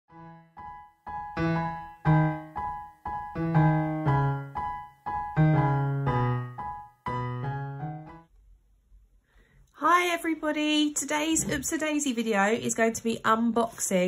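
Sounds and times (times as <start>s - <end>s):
bright piano tune: 0.1s - 8.3s.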